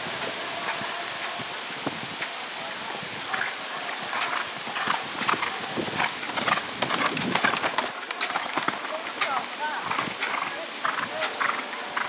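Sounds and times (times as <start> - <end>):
steady outdoor hiss: 0.0 - 12.0
horse hoofbeats on grass: 2.9 - 12.0.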